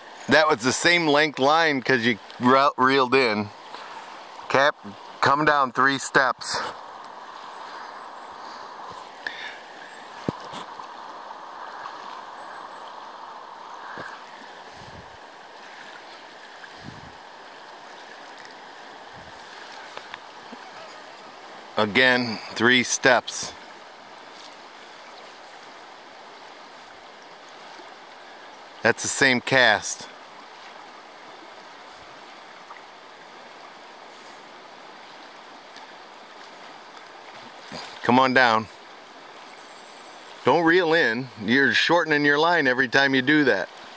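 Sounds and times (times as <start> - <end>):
river rushing over stones: 0.0 - 43.9.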